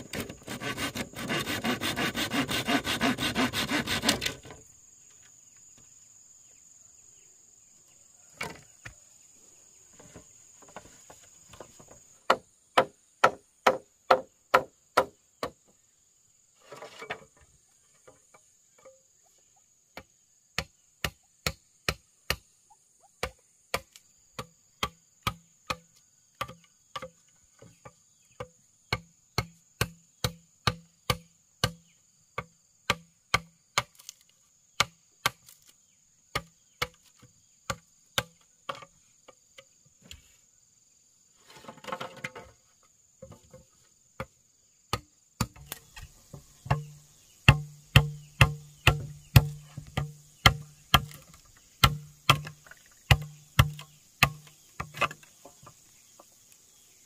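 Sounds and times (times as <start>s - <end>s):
hand tool striking wood: 0.0s - 4.6s, 10.0s - 15.6s, 23.2s - 34.2s, 36.3s - 38.9s, 44.2s - 55.8s
rustle: 0.0s - 14.5s, 15.2s - 20.4s, 33.5s - 57.0s
insects droning: 0.0s - 57.0s.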